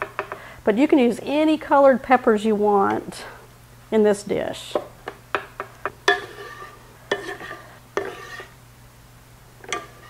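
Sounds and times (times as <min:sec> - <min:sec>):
spoon stirring food: 0:04.7 - 0:08.6, 0:09.6 - 0:10.0.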